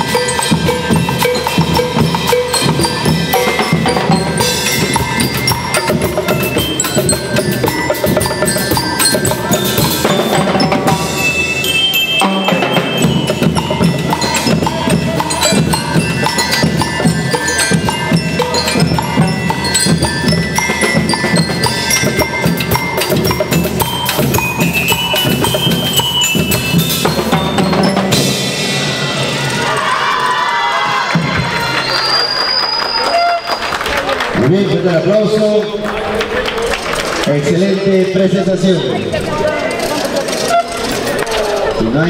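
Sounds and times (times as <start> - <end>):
snare drums: 0.0 - 11.6, 12.2 - 32.1
glockenspiel melody: 0.0 - 30.0
drum kit beat: 0.0 - 31.8
people cheering: 28.5 - 42.0.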